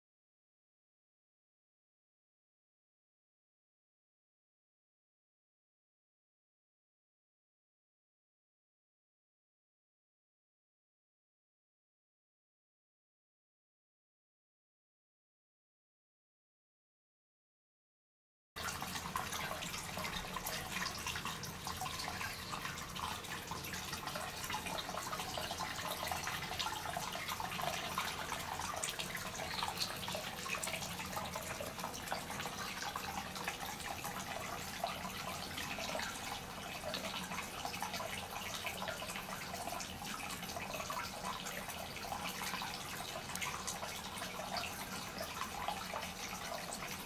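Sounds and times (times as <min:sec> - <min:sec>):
water pouring into a bath: 0:18.6 - 0:47.0.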